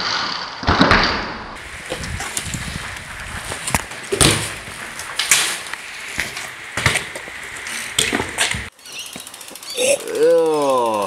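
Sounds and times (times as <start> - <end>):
bike wheels knocking on concrete: 1.6 - 9.4
bike frame rattling: 1.6 - 11.0
bike rolling on concrete: 1.6 - 11.0.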